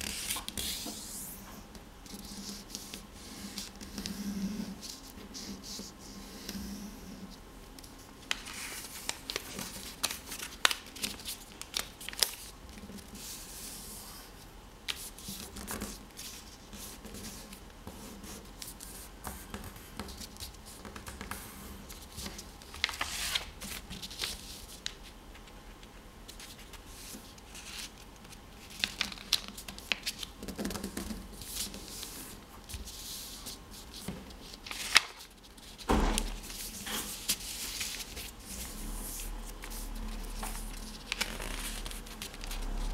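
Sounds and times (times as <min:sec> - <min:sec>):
paper rustling: 0:08.3 - 0:13.4, 0:18.6 - 0:42.9
paper creases clicking and scraping: 0:18.6 - 0:42.9.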